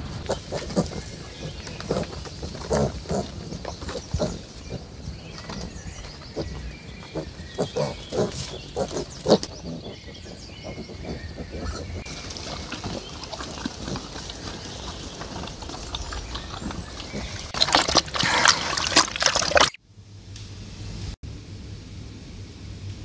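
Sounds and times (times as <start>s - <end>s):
pigs grunting: 0.0s - 19.8s
crackling rustling noise: 12.0s - 21.2s.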